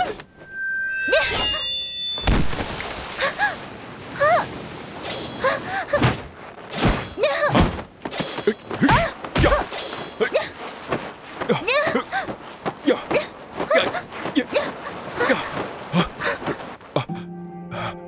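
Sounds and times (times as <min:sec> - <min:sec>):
metallic blade ring: 0:00.3 - 0:02.3.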